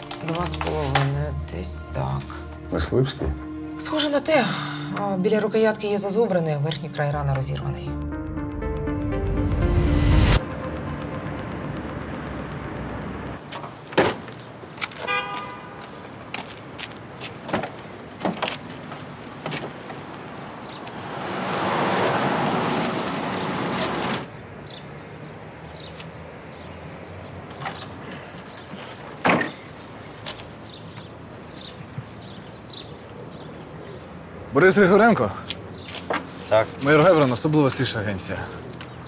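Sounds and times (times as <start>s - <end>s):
street ambience: 0.0s - 39.0s
car driving past: 20.9s - 24.2s.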